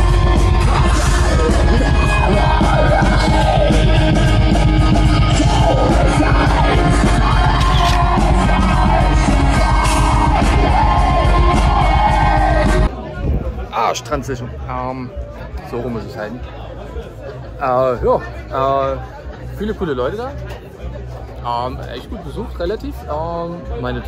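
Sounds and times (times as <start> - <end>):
fast dense drumming: 0.0 - 12.9
harsh shouted vocals: 0.0 - 12.9
heavy metal music: 0.0 - 12.9.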